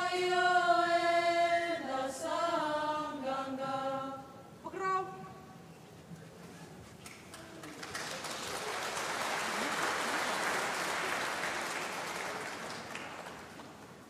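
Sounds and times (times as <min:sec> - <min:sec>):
audience applauding: 0:07.0 - 0:14.0.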